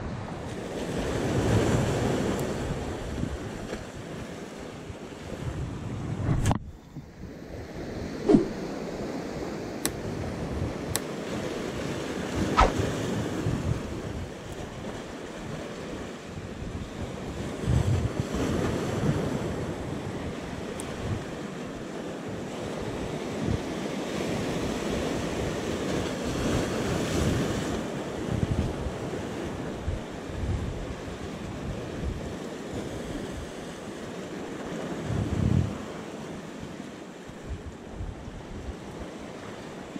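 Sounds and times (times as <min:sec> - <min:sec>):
wind buffeting microphone: 0:00.0 - 0:21.5, 0:22.3 - 0:33.6, 0:34.6 - 0:36.0
sea waves washing against rocks: 0:07.4 - 0:29.5.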